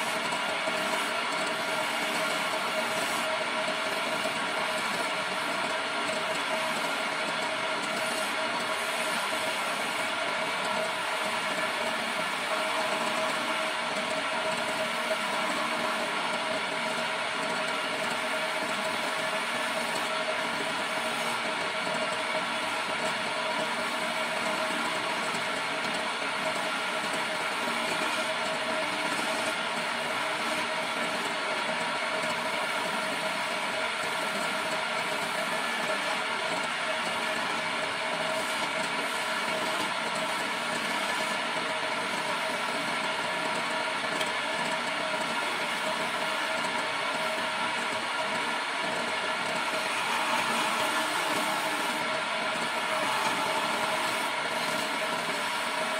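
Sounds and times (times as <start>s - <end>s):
wood lathe whine: 0.0s - 55.9s
scraper scraping spinning wood: 49.1s - 55.9s.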